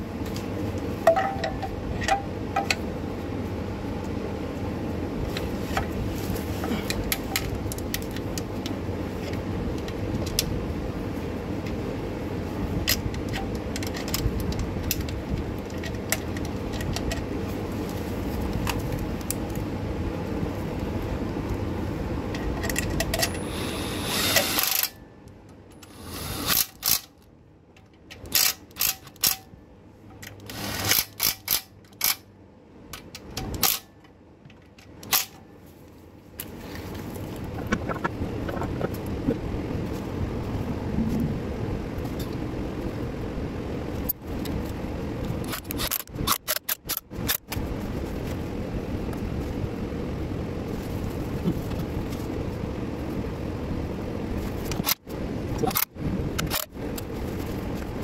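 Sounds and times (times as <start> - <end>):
cordless ratchet bursts and clicks: 23.2 - 24.9, 25.8 - 27.1, 30.4 - 32.2
steady rushing noise: 36.5 - 58.0.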